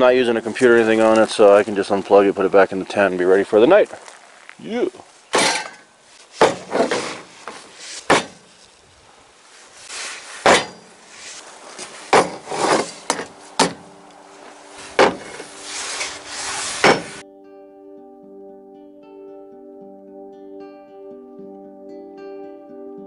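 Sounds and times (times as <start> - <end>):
rustling handling noise: 2.8 - 17.2
sharp knocks and cracks: 6.4 - 8.4, 10.4 - 10.9, 12.1 - 13.8, 15.0 - 15.3, 16.8 - 17.2.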